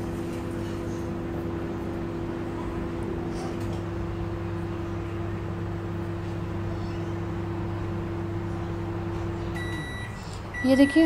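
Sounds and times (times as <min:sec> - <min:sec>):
microwave oven humming: 0:00.0 - 0:11.0
microwave beep: 0:09.4 - 0:11.0.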